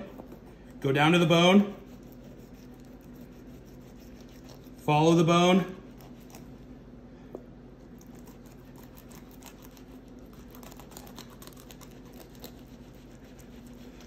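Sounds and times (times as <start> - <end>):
low steady hum: 0.0 - 14.0
knife clicking and crunching on bones: 8.0 - 12.7.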